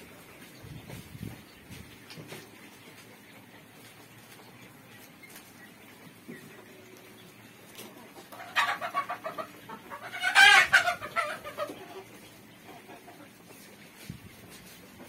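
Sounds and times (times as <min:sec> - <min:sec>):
quail calling: 0:08.4 - 0:12.1.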